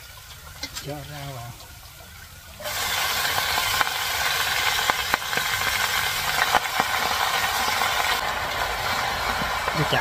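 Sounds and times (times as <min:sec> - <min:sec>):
greens sizzling in hot oil: 0:02.5 - 0:10.0.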